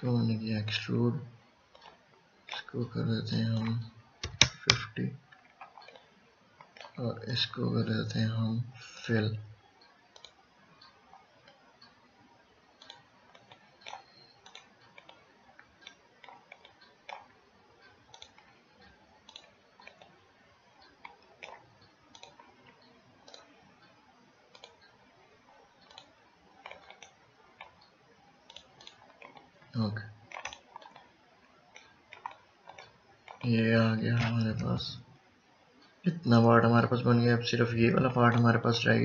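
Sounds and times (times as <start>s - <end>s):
low steady hiss: 0.0s - 39.0s
computer mouse clicks: 3.3s - 7.0s, 9.8s - 12.0s, 12.7s - 20.2s, 20.8s - 27.9s, 28.5s - 35.0s.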